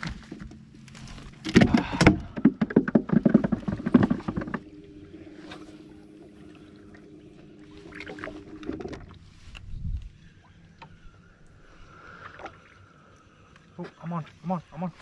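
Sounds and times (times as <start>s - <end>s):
trolling motor electric hum: 0.0s - 15.0s
clatter of knocks and rattles: 1.5s - 4.7s.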